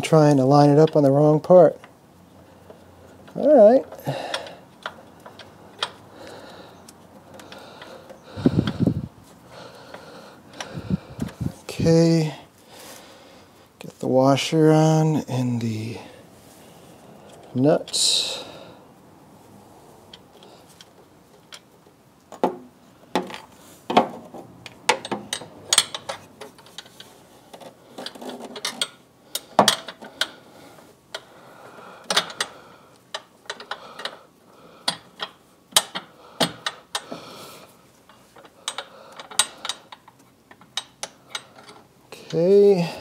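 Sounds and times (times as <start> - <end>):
metallic clicks of washer and nut: 24.6 - 30.3, 32.0 - 34.2, 34.8 - 37.1, 38.1 - 42.5.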